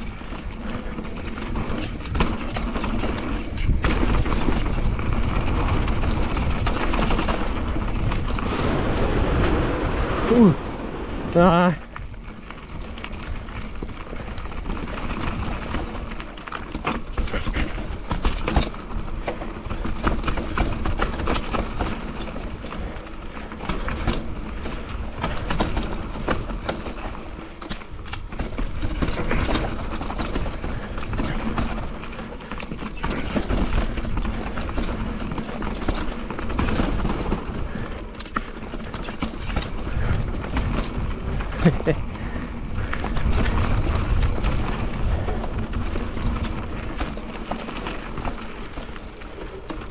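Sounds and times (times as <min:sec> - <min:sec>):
bike rattling and clattering: 0:00.0 - 0:49.9
bike tyres rolling and knocking: 0:00.0 - 0:49.9
low rumble: 0:04.9 - 0:13.6.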